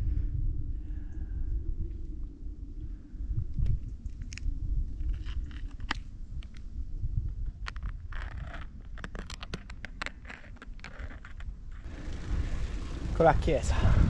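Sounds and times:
wind rumbling on microphone: 0:00.0 - 0:14.0
bike tyres clicking and crunching: 0:03.8 - 0:06.7, 0:07.3 - 0:13.3.

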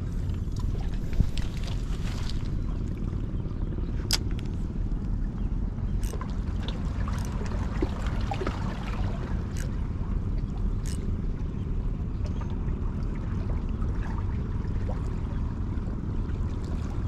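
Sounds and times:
low rumble: 0:00.0 - 0:17.0
water trickling and gurgling: 0:05.0 - 0:17.0
sharp clicks and ticks: 0:06.0 - 0:06.3, 0:10.8 - 0:11.0.

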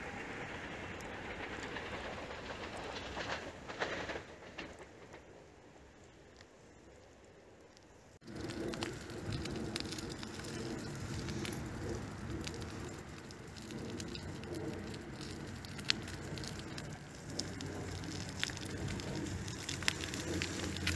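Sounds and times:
steady rain falling: 0:00.0 - 0:20.9
sharp drop ticks: 0:08.3 - 0:20.9.

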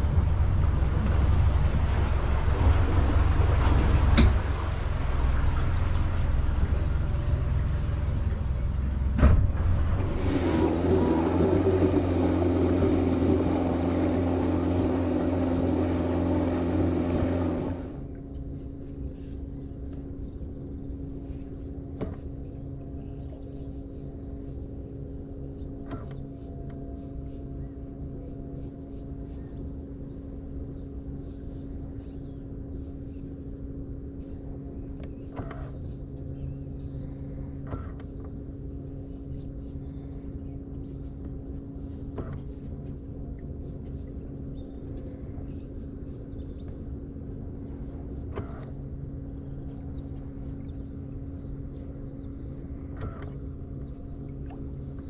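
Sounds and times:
boat motor rumbling: 0:00.0 - 0:55.0.

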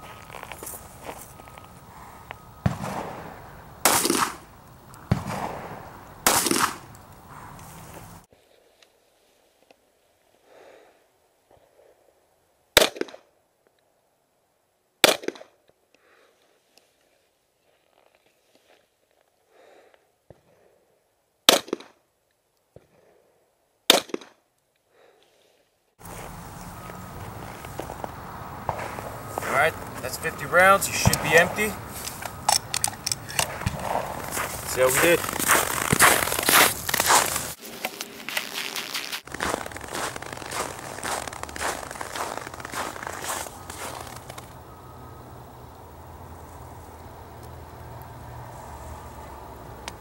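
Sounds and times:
handgun shots: 0:03.9 - 0:04.4, 0:06.3 - 0:06.8, 0:31.0 - 0:31.6
handgun shots with echo: 0:31.0 - 0:31.6.

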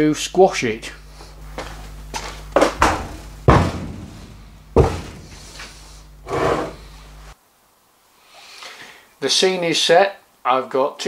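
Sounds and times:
low hum: 0:00.0 - 0:07.4
heavy metal clunks on wood: 0:02.7 - 0:05.4.

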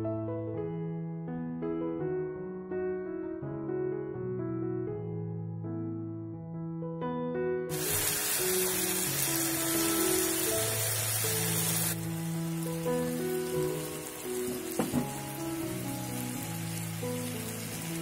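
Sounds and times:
background music with held notes: 0:00.0 - 0:18.0
vegetables sizzling in a pan: 0:07.7 - 0:18.0
quick knocks: 0:14.7 - 0:15.2.

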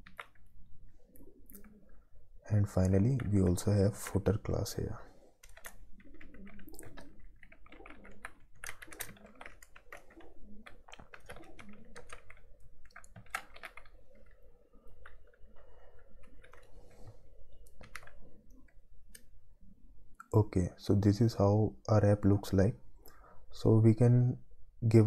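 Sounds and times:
keyboard typing: 0:00.0 - 0:02.0, 0:02.6 - 0:04.3, 0:05.4 - 0:19.4.

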